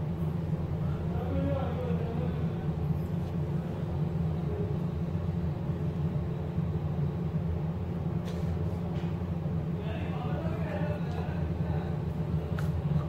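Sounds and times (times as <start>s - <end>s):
steady low hum: 0.0s - 13.0s
faint man's voice: 9.8s - 12.5s.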